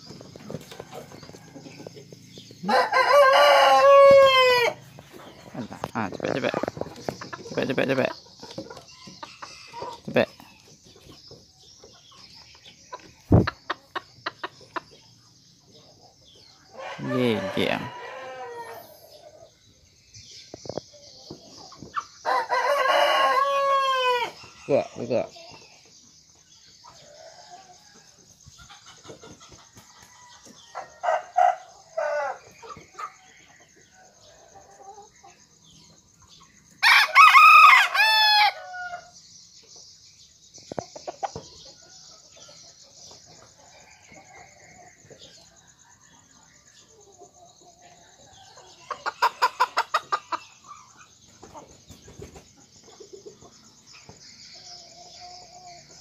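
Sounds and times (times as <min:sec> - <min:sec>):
rooster crowing: 0:02.6 - 0:04.9, 0:16.7 - 0:19.0, 0:22.3 - 0:24.4, 0:36.8 - 0:39.1.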